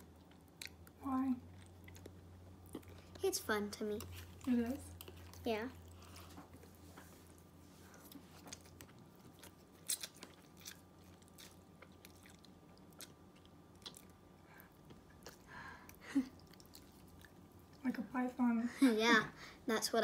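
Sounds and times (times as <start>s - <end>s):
slurping and chewing noodles: 7.8s - 17.8s.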